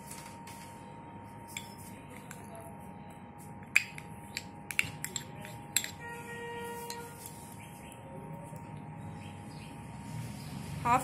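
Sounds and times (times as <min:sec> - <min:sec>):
spoon clicking against cup: 0:03.7 - 0:06.0.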